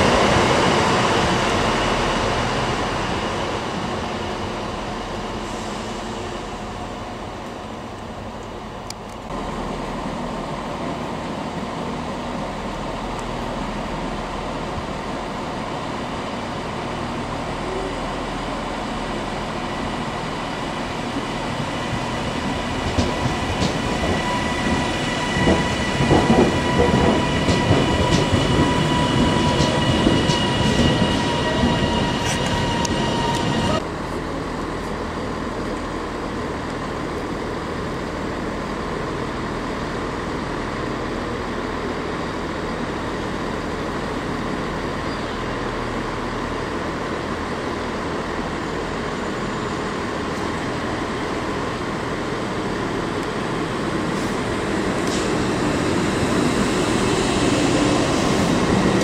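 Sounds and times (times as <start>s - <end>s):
passenger train running past: 0.0s - 59.0s
train wheels clicking over rail joints: 21.9s - 33.6s.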